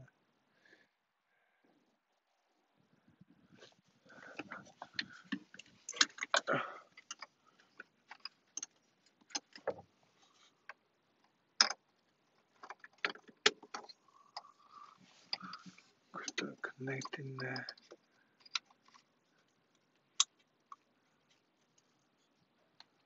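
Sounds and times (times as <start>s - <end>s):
clicks and taps of parts and tools: 4.4s - 9.8s, 10.7s - 14.5s, 15.3s - 19.0s.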